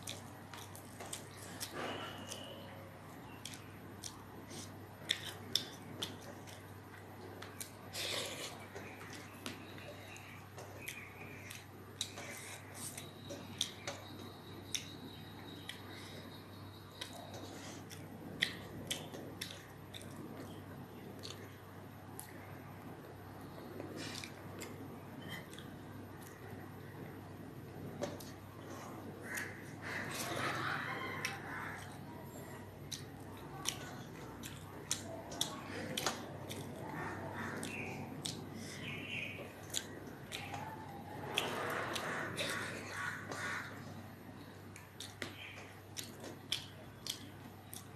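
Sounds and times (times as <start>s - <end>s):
chewing: 0.0s - 47.9s
fingers squishing food: 27.3s - 47.9s.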